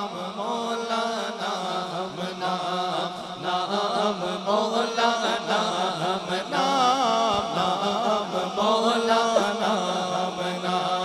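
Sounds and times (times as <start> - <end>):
man singing into a microphone: 0.0 - 11.0.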